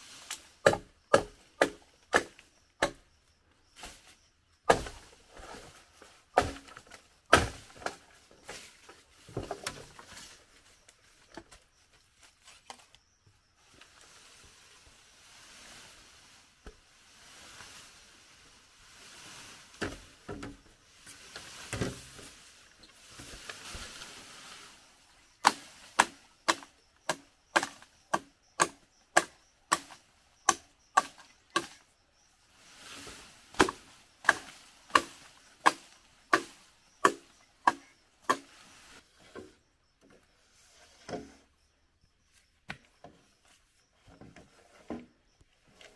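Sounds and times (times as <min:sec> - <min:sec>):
leaves rustling: 0:00.0 - 0:00.7, 0:03.7 - 0:11.4, 0:13.6 - 0:26.7, 0:31.0 - 0:39.3
machete chopping bamboo: 0:00.6 - 0:03.0, 0:04.7 - 0:05.1, 0:06.4 - 0:08.0, 0:25.4 - 0:31.8, 0:33.5 - 0:38.5.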